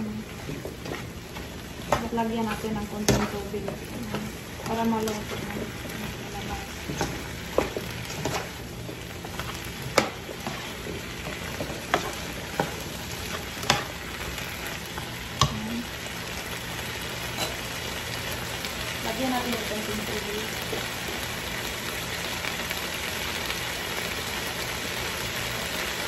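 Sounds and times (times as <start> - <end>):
vegetables sizzling in a skillet: 0.0 - 26.0
spatula knocking and scraping pan: 0.3 - 14.0.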